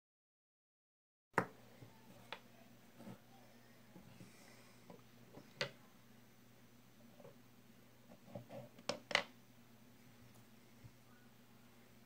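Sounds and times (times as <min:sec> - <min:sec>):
faint steady hum: 0:01.4 - 0:12.0.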